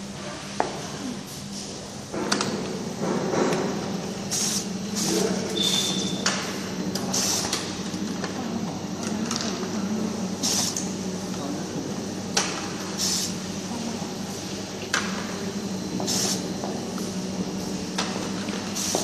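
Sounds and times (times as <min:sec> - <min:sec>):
labeling machine motor hum: 0:00.9 - 0:19.0
short hissing bursts: 0:04.3 - 0:06.0, 0:13.0 - 0:13.3.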